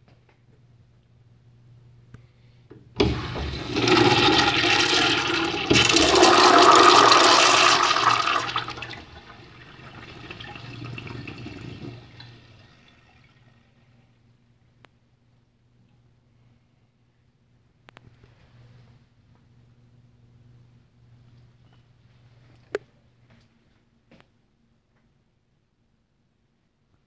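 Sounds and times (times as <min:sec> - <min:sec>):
urinal flushing water rush: 0:03.0 - 0:13.8.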